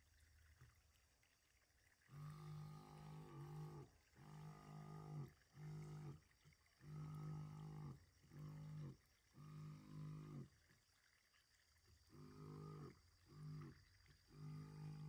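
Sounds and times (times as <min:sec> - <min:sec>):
sprayer pump humming: 0:02.0 - 0:06.2, 0:06.8 - 0:10.5, 0:12.1 - 0:15.0.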